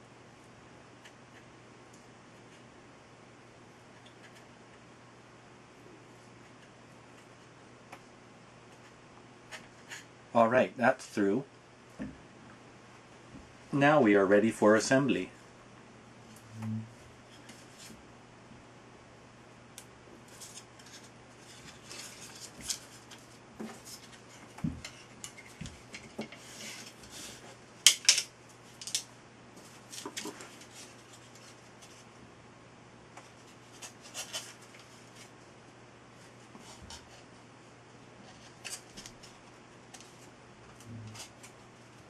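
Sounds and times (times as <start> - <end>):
paper rustling: 20.3 - 27.4, 29.6 - 32.1, 33.2 - 35.3.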